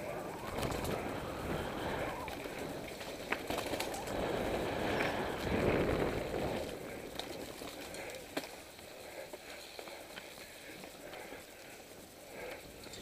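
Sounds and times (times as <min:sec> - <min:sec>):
wind rushing past: 0:00.0 - 0:07.1
tyres rolling over dirt: 0:00.0 - 0:11.2
bike clicks and rattles: 0:00.0 - 0:13.0.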